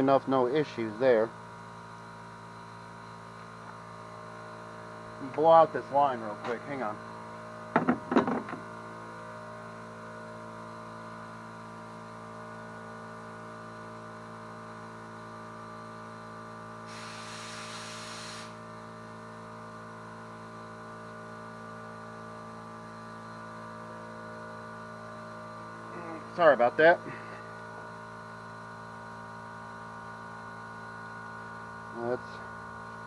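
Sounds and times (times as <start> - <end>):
steady electrical hum: 0.0 - 11.3, 20.4 - 33.0
air hissing through fuel line: 16.8 - 18.7.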